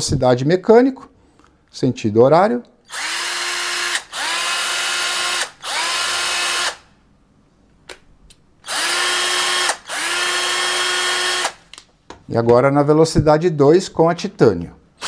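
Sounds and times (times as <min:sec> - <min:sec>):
cordless drill motor whine: 0:02.9 - 0:06.8, 0:08.7 - 0:11.6.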